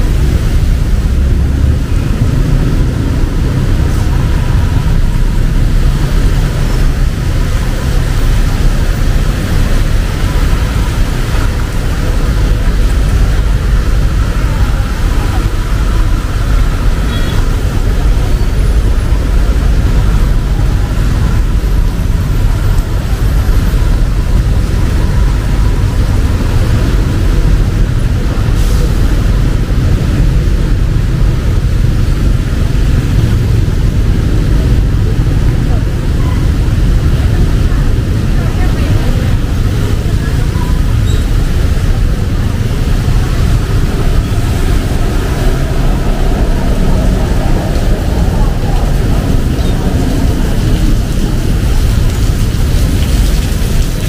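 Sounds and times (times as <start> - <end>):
rain falling: 0.0 - 54.0
road traffic: 0.0 - 54.0.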